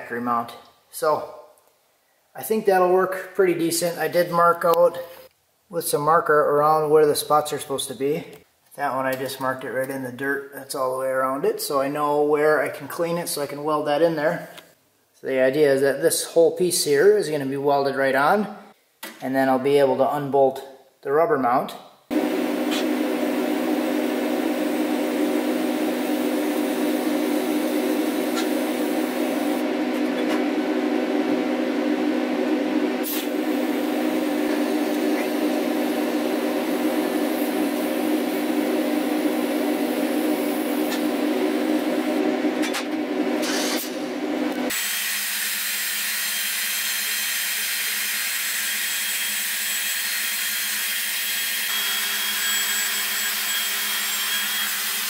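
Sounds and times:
welding buzzing hum: 22.1 - 44.8.

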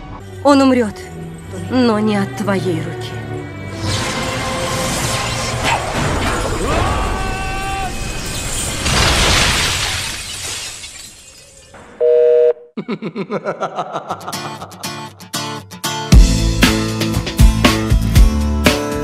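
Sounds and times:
dramatic soundtrack music: 0.0 - 6.5
crashing shattering effects: 3.7 - 12.0.

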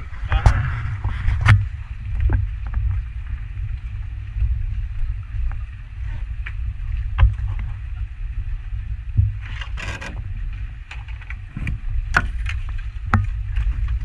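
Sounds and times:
boat engine low rumble: 0.0 - 14.0
knocks and taps on boat: 7.1 - 7.7, 9.1 - 10.2, 10.8 - 14.0.

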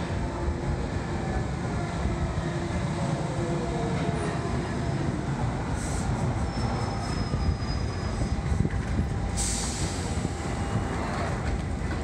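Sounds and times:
train rumbling and braking: 0.0 - 12.0
thin high brake squeal: 5.8 - 8.5.

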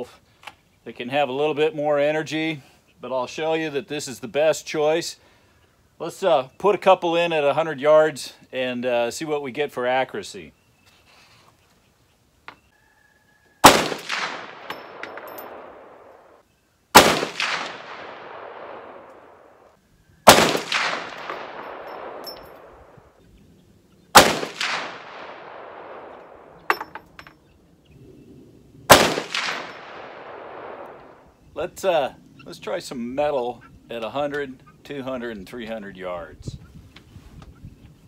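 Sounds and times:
rifle shots echoing: 13.6 - 23.1, 24.1 - 26.8, 28.9 - 31.3.

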